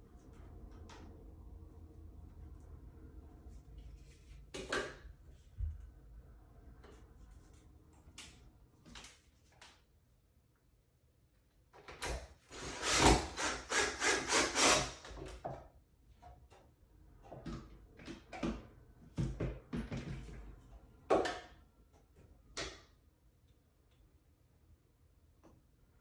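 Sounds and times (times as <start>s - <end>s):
cordless drill driving screw into wood: 12.5s - 15.2s.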